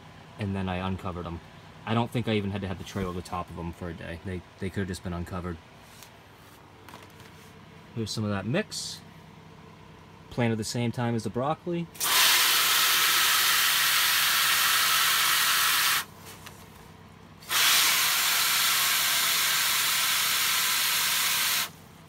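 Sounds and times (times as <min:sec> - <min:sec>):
hose nozzle spraying water: 0:12.0 - 0:16.1, 0:17.4 - 0:21.7.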